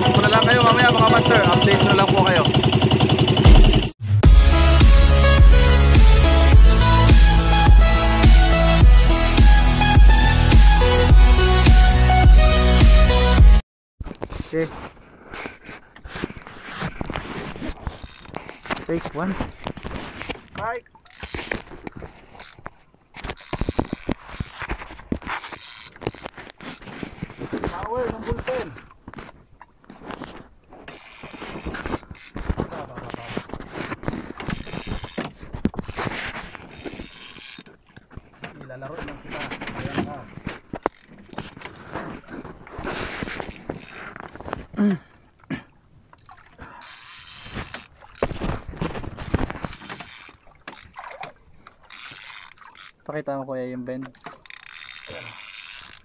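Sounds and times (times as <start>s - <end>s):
fishing reel clicking and rattling: 17.1s - 28.2s, 30.2s - 38.0s, 39.0s - 44.6s, 46.7s - 56.0s.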